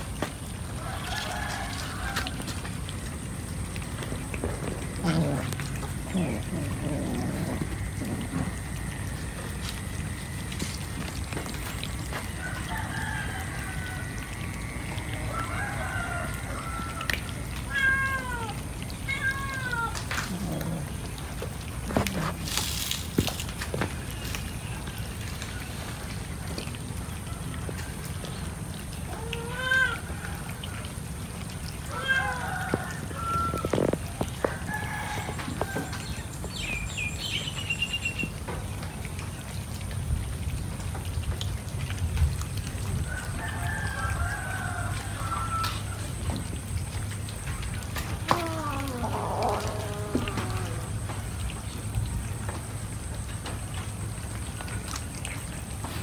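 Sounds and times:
rooster crowing: 0:00.8 - 0:02.5, 0:12.3 - 0:14.4, 0:15.1 - 0:17.3, 0:31.9 - 0:36.1, 0:43.1 - 0:46.0
cats meowing: 0:04.4 - 0:08.7, 0:17.5 - 0:22.5, 0:29.1 - 0:30.1, 0:31.8 - 0:34.0, 0:48.2 - 0:50.9.

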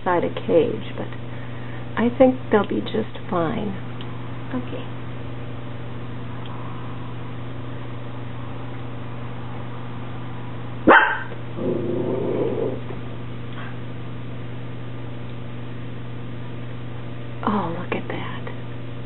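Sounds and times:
steady low hum: 0:00.0 - 0:19.0
dog barking: 0:10.8 - 0:11.4.

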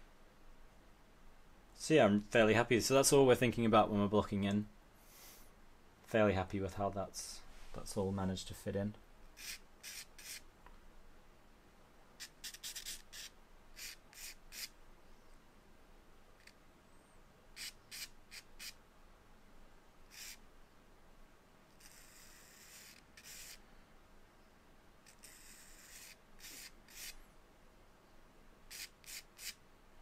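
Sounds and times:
charcoal scratching on paper: 0:09.4 - 0:10.4, 0:12.2 - 0:14.7, 0:17.6 - 0:18.8, 0:20.1 - 0:20.4, 0:21.8 - 0:23.6, 0:25.1 - 0:27.2, 0:28.7 - 0:29.6.

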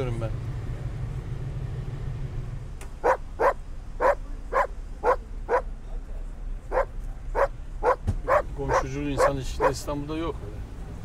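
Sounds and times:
dog barking: 0:03.0 - 0:05.7, 0:06.7 - 0:09.9.

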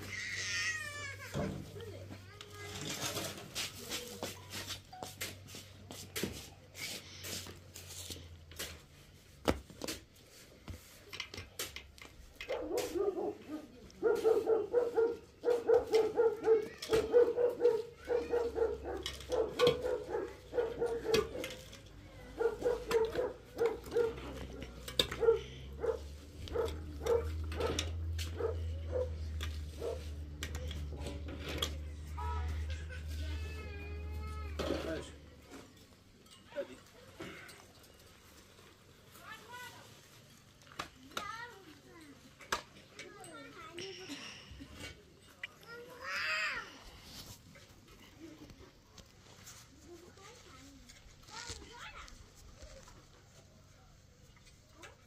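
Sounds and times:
dog barking: 0:12.5 - 0:21.6, 0:22.3 - 0:29.2, 0:29.8 - 0:30.1.

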